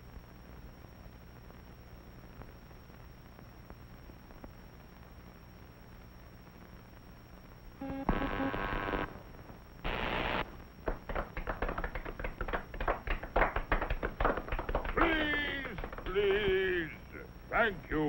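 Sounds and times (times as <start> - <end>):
cartoon buzzing tone: 7.8 - 10.5
crowd clapping: 10.8 - 17.0.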